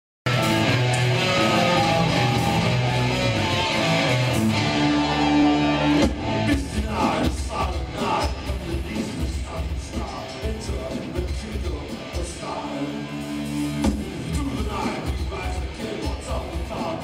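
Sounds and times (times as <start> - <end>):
sustained guitar chords: 0.3 - 10.6, 11.4 - 15.9
rock band playing: 0.3 - 17.0
driving drum beat: 5.9 - 12.7, 13.4 - 17.0.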